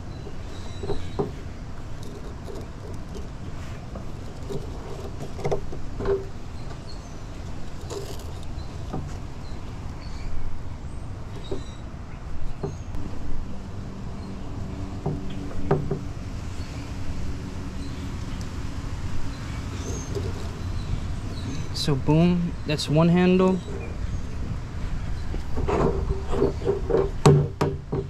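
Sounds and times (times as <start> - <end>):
rope rustling: 1.8 - 6.4.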